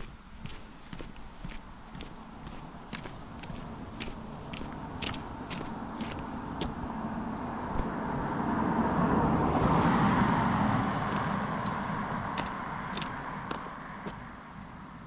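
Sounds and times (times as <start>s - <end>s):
footsteps: 0.0s - 6.9s, 11.0s - 14.3s
road vehicle passing: 0.0s - 15.0s.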